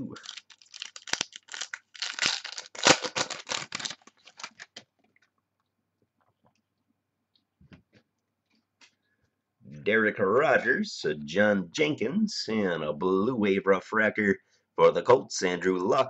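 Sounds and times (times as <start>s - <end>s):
foil pack tearing and crinkling: 0.2s - 4.8s.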